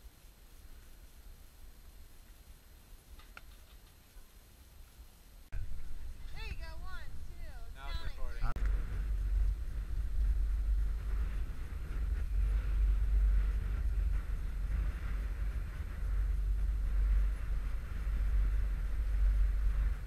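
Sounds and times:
faint hiss: 0.0s - 20.0s
wind buffeting microphone: 5.5s - 20.0s.

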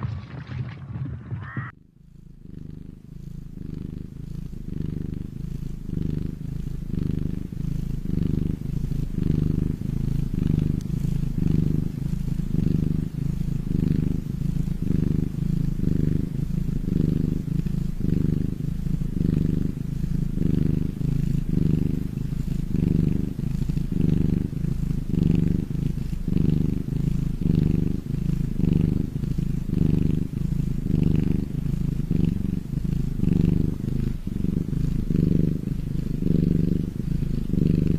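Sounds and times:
kitten purring: 0.0s - 37.9s.

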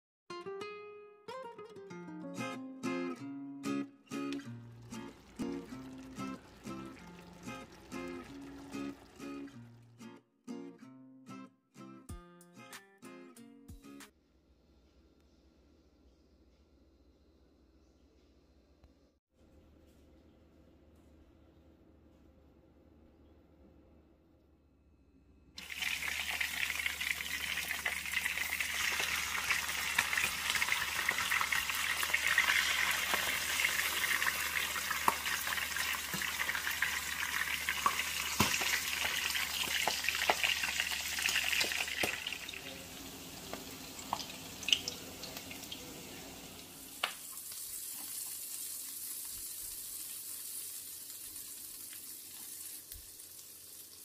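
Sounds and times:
fish frying in hot oil: 25.6s - 45.9s, 46.9s - 54.0s
onion sauteing hiss: 25.6s - 54.0s.

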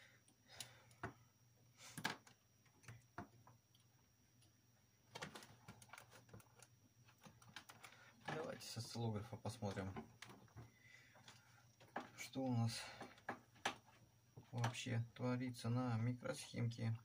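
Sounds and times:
clicks and knocks of test probes: 13.0s - 14.8s.

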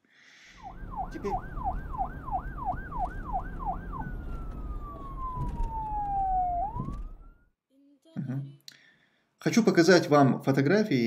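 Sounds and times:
siren yelp and wail: 0.6s - 7.5s
low rumble: 0.7s - 7.4s.

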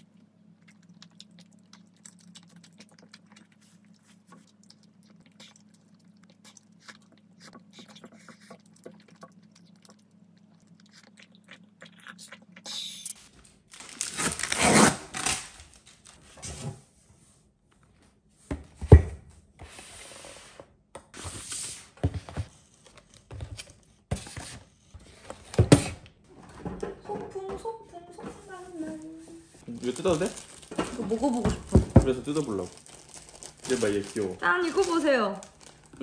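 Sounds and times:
rustling plastic and cardboard packaging: 13.4s - 16.8s, 28.0s - 36.0s
boxes knocking on table: 30.8s - 32.3s.

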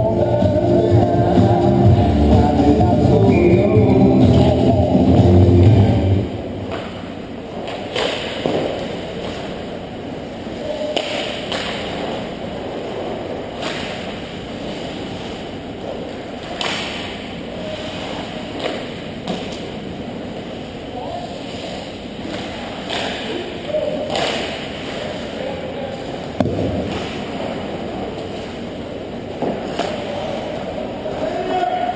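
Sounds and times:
rink music: 0.0s - 6.4s
rink background noise: 0.0s - 31.9s
hockey sticks and puck knocking: 7.6s - 9.6s, 10.9s - 12.4s, 16.4s - 17.2s, 26.4s - 27.2s.

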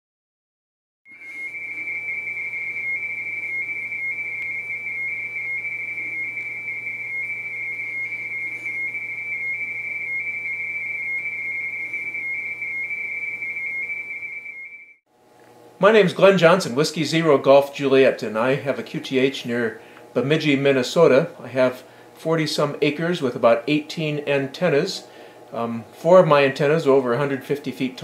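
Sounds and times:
high-pitched two-tone data signal: 1.2s - 15.0s.

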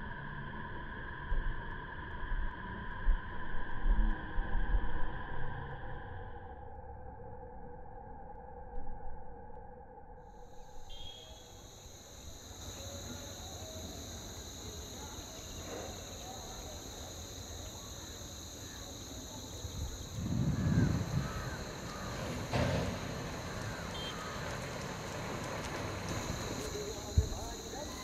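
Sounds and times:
insect chirring: 10.2s - 28.0s
faint bird chirps: 10.4s - 14.0s
low rumble: 19.6s - 27.3s.

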